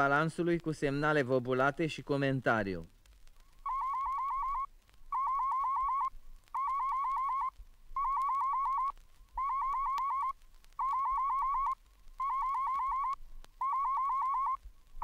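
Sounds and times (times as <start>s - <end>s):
faint record clicks: 0.0s - 15.0s.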